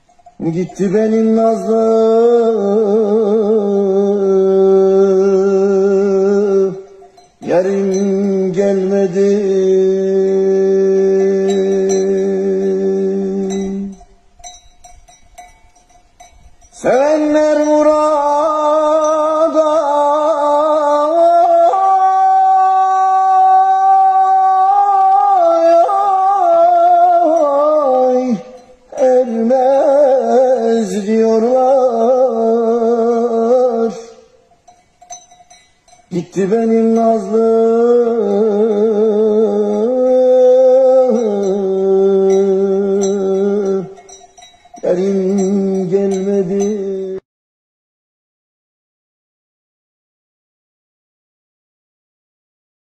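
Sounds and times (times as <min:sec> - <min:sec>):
faint high clinks: 0:00.0 - 0:02.2, 0:06.0 - 0:19.9, 0:27.1 - 0:32.4, 0:33.0 - 0:47.2
man singing unaccompanied: 0:00.0 - 0:14.2, 0:16.7 - 0:34.4, 0:36.0 - 0:47.2.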